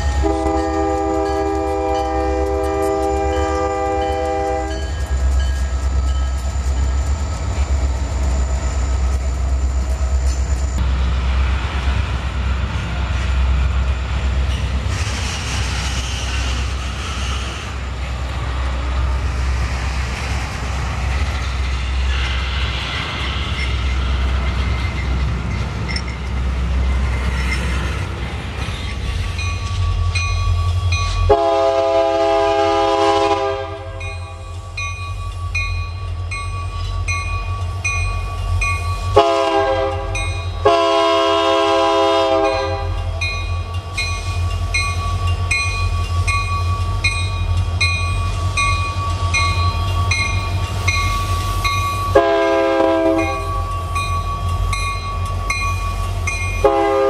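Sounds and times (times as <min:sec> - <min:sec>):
freight train wheels rumbling: 0:00.0 - 0:57.0
locomotive air horn blasts: 0:00.2 - 0:04.8, 0:31.3 - 0:34.0, 0:39.2 - 0:43.0, 0:52.1 - 0:53.6, 0:56.6 - 0:57.0.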